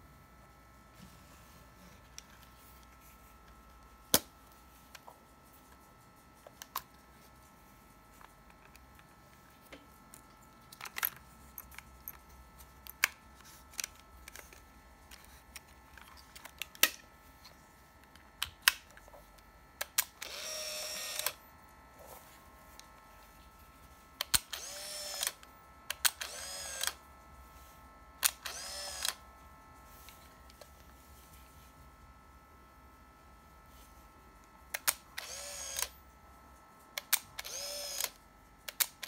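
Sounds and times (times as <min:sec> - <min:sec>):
camera clicks and snaps: 0:19.8 - 0:21.4, 0:24.2 - 0:27.0, 0:28.2 - 0:29.2, 0:34.8 - 0:35.9, 0:37.0 - 0:39.0
film-winding motor whirring: 0:20.2 - 0:21.4, 0:24.4 - 0:25.4, 0:26.2 - 0:27.0, 0:28.2 - 0:29.2, 0:35.2 - 0:35.9, 0:37.4 - 0:38.2.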